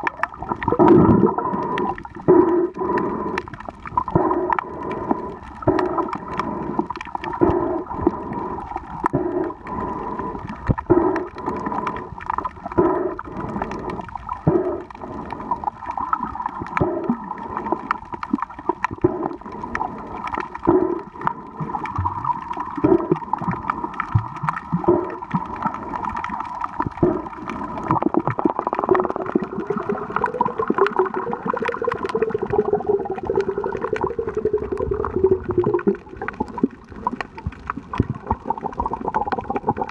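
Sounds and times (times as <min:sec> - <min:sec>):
gurgling water pulses: 0:00.0 - 0:39.9
underwater hum: 0:00.0 - 0:39.9.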